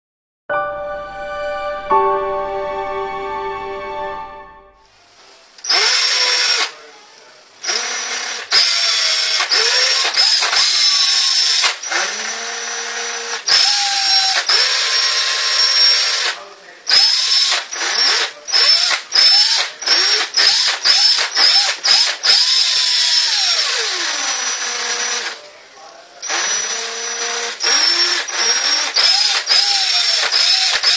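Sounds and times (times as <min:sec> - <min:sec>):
electric drill whirring: 0:05.6 - 0:06.8, 0:07.6 - 0:25.4, 0:26.2 - 0:30.9.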